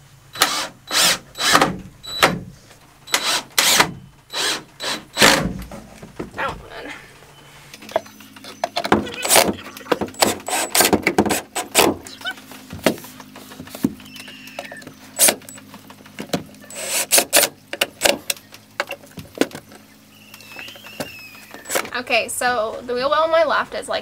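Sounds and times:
cordless drill driving screws: 0.4 - 2.4, 3.1 - 5.5, 10.1 - 11.8, 16.7 - 18.2.

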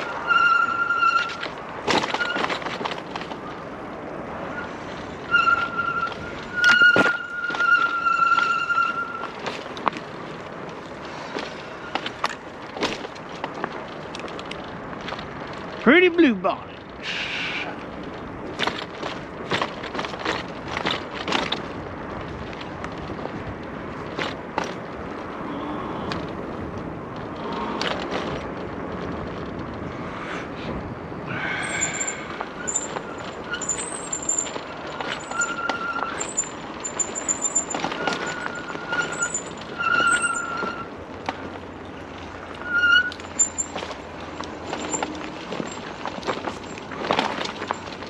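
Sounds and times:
short high squeals: 0.0 - 2.6, 4.4 - 9.4, 31.3 - 41.0, 42.6 - 43.9
bike rattling over bumps: 0.0 - 48.0
tyre and wind noise: 0.0 - 48.0.

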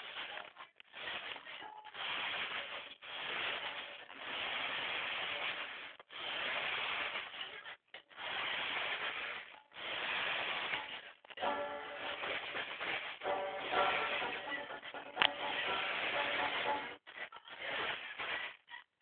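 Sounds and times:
toy car electric motor whirring: 2.0 - 7.6, 8.2 - 11.0.

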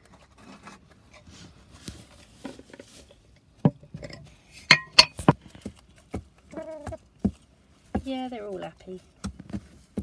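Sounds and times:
hens rustling straw: 1.2 - 3.3, 5.2 - 10.0
hens pecking with taps and clinks: 2.4 - 10.0.

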